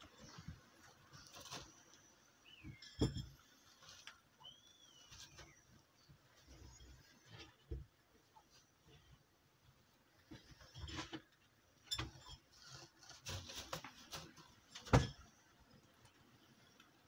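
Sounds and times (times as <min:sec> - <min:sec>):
rabbit rustling in hay: 0:00.0 - 0:02.1, 0:12.6 - 0:14.8.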